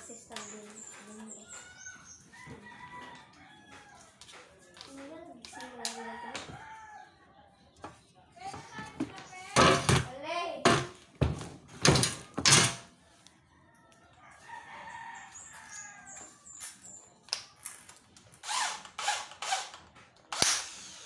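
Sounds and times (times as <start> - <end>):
distant rooster crowing: 1.5 - 4.4, 12.9 - 16.4
knocks of metal parts handled: 9.6 - 12.8.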